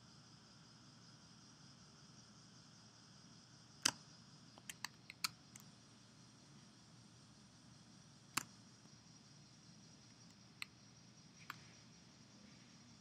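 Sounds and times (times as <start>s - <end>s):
faint steady hiss: 0.0s - 13.0s
computer mouse clicks: 3.8s - 4.0s, 4.6s - 5.7s, 8.3s - 8.6s, 11.4s - 11.7s.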